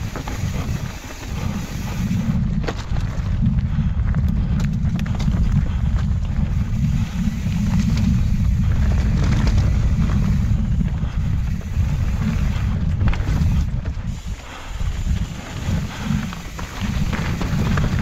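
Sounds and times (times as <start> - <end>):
bike clicks and rattles: 0.0 - 18.0
tyres rolling over trail: 0.0 - 18.0
wind buffeting microphone: 0.0 - 18.0.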